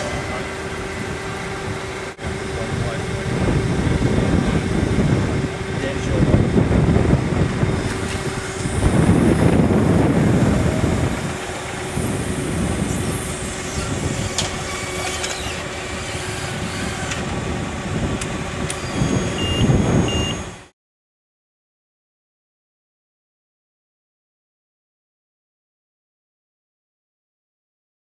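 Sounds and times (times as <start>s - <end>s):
machinery humming: 0.0s - 20.7s
short high beeps: 18.8s - 20.6s.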